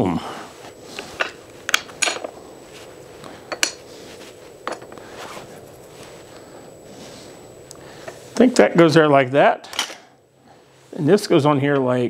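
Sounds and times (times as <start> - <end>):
metal brackets clinking: 1.2 - 2.4.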